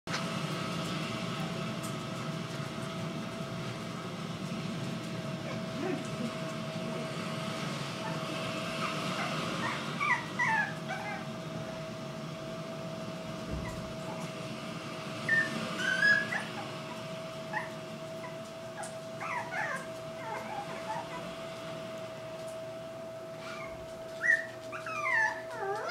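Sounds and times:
puppies whimpering and yipping: 0:05.4 - 0:06.5, 0:08.0 - 0:11.4, 0:15.2 - 0:21.5, 0:23.4 - 0:25.9.

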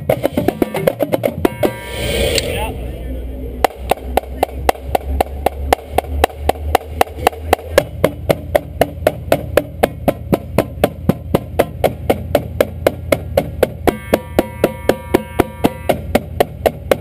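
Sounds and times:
steady clicking pulse: 0:03.6 - 0:17.0.

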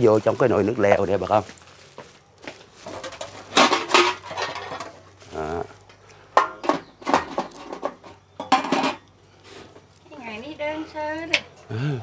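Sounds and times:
kitchenware clattering: 0:02.8 - 0:05.0, 0:06.3 - 0:09.0.

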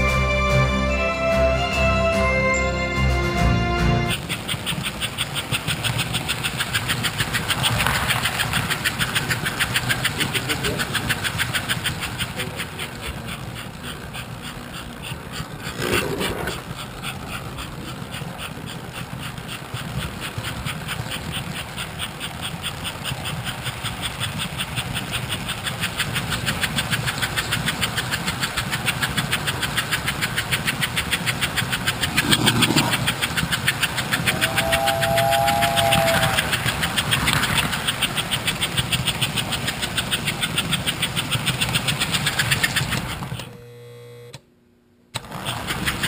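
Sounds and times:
two-note steam whistle: 0:00.0 - 0:04.2, 0:34.2 - 0:36.8
steam locomotive chuffing: 0:00.0 - 0:43.5, 0:45.2 - 0:46.0.

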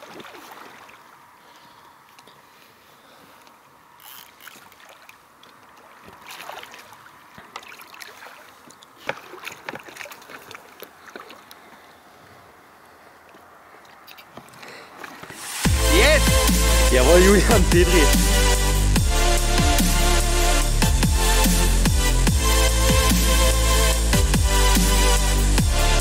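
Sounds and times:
fish thrashing water splashing: 0:00.0 - 0:01.0, 0:04.3 - 0:11.8.

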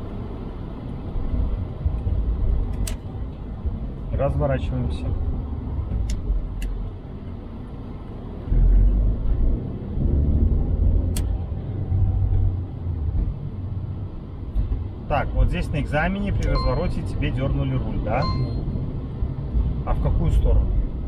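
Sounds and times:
car engine and road rumble: 0:00.0 - 0:21.0.

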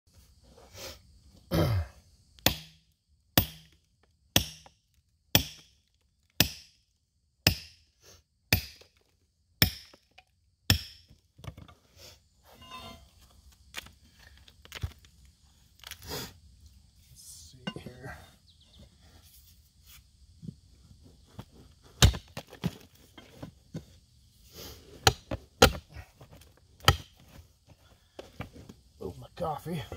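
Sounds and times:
sledgehammer striking rock: 0:02.4 - 0:02.8, 0:03.4 - 0:05.8, 0:06.4 - 0:06.8, 0:07.4 - 0:07.8, 0:08.5 - 0:08.9, 0:09.6 - 0:10.1, 0:10.7 - 0:11.2, 0:22.0 - 0:22.8, 0:25.0 - 0:26.0, 0:26.8 - 0:27.3
loosened rock knocking and scraping: 0:11.1 - 0:11.8, 0:12.6 - 0:16.0, 0:20.3 - 0:24.1, 0:25.0 - 0:28.8.

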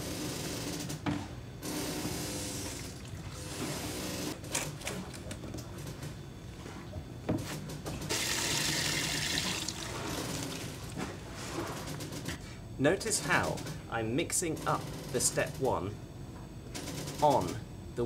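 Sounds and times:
hose spraying water into bucket: 0:08.1 - 0:10.7
liquid pouring into plastic bucket: 0:08.1 - 0:10.9.

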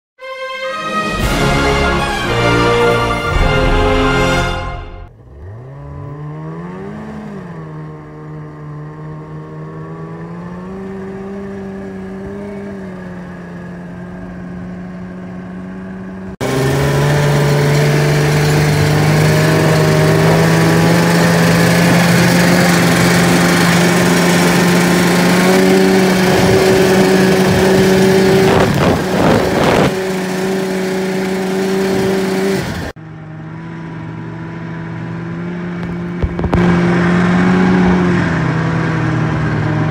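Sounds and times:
snowmobile engine running: 0:00.2 - 0:39.9
wind rushing over microphone: 0:25.5 - 0:30.2.

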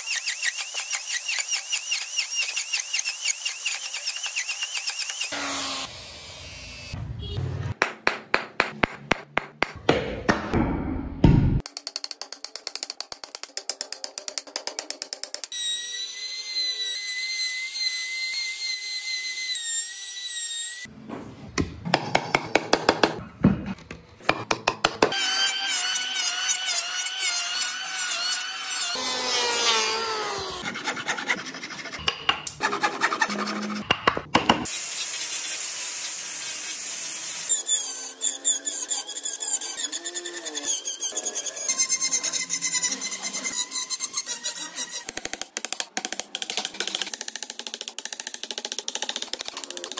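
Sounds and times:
chisel striking wood: 0:07.8 - 0:10.6, 0:24.2 - 0:25.2, 0:32.0 - 0:32.6, 0:33.8 - 0:34.7.

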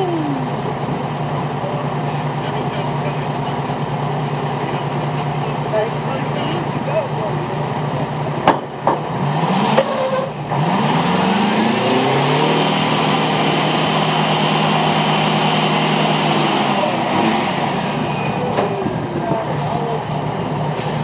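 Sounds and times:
engine revving: 0:00.0 - 0:21.0.

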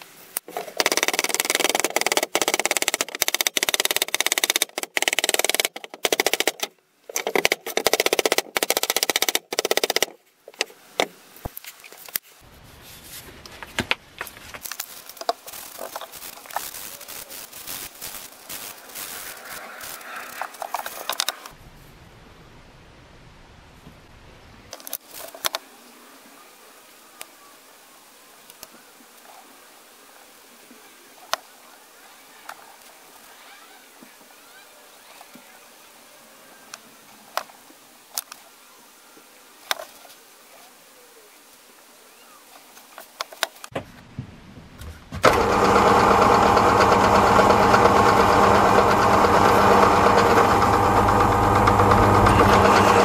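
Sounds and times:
tool clicks and rustles: 0:00.3 - 0:12.4, 0:13.4 - 0:21.6, 0:24.7 - 0:25.6
plastic bottle being handled: 0:12.9 - 0:18.6.

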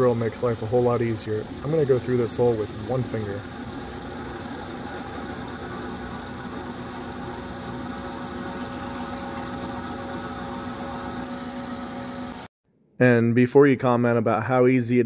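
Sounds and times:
milling machine drilling aluminum: 0:07.0 - 0:12.5.

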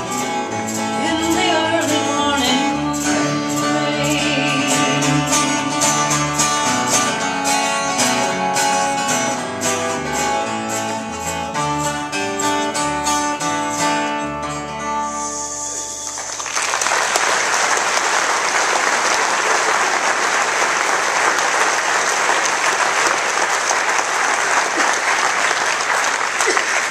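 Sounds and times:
bass guitar line: 0:00.0 - 0:16.4
acoustic guitar playing folk song: 0:00.0 - 0:16.5
audience applause: 0:15.6 - 0:26.9.

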